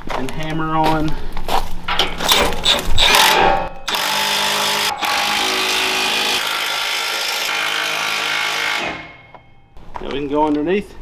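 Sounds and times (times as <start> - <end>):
impact wrench running: 2.2 - 9.4.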